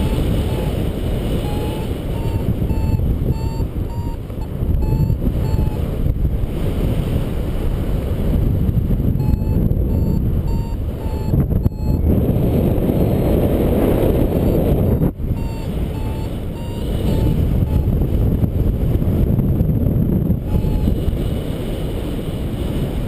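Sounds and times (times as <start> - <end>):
variometer beeping: 0.0 - 6.2, 9.1 - 12.8, 13.9 - 18.2, 20.4 - 21.2
wind noise on microphone: 0.0 - 23.0.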